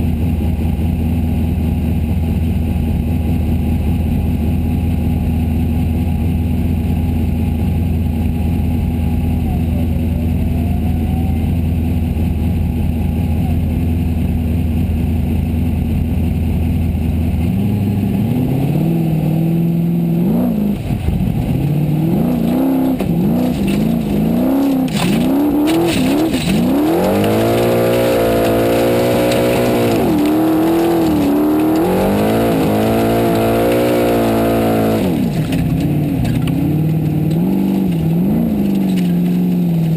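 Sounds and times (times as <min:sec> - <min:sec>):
race car engine revving: 0:17.4 - 0:39.9.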